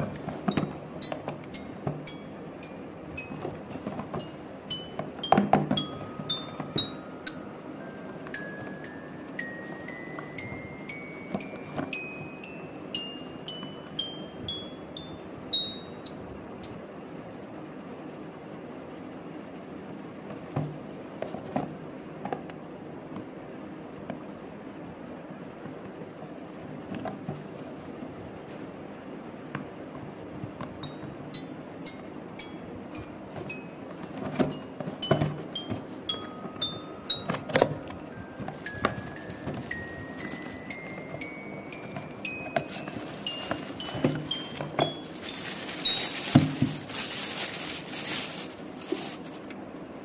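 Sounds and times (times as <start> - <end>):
bell-like chime melody: 0.5 - 17.3, 30.8 - 46.2
cardboard box knocks: 5.3 - 6.0, 34.2 - 35.8, 41.8 - 45.0, 46.3 - 46.9.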